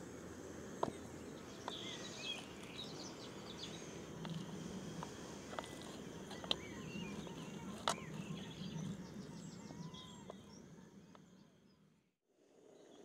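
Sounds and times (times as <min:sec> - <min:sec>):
background hiss: 0:00.0 - 0:09.3
birds chirping and trilling: 0:00.8 - 0:12.1.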